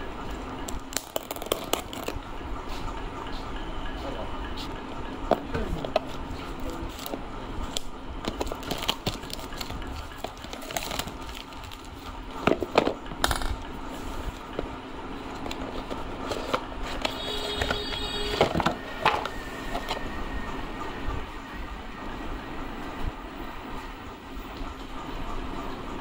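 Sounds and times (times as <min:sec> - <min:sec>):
plastic and cardboard crinkling: 0:00.7 - 0:02.2, 0:05.8 - 0:13.3, 0:14.0 - 0:19.3.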